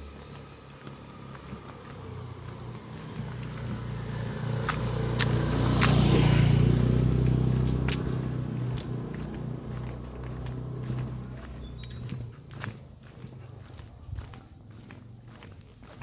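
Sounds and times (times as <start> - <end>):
vehicle engine passing: 0.0 - 16.0.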